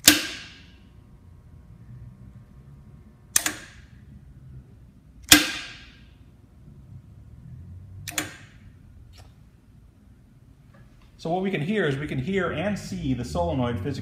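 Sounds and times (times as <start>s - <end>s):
solenoid snapping: 0.0s - 0.5s, 3.3s - 3.8s
valve clicking: 3.3s - 3.8s.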